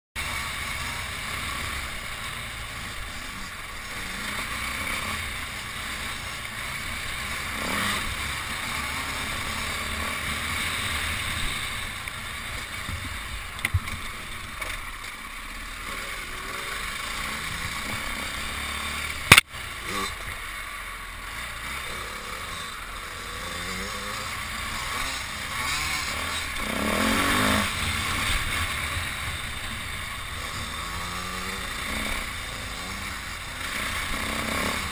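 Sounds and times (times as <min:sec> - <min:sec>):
dirt bike engine revving: 0:00.2 - 0:34.9
sharp knock: 0:19.3 - 0:19.5.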